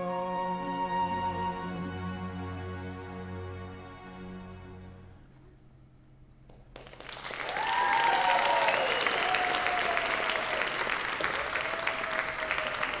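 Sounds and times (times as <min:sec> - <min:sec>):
audience applause: 0:06.8 - 0:13.0
cheering calls: 0:07.4 - 0:13.0.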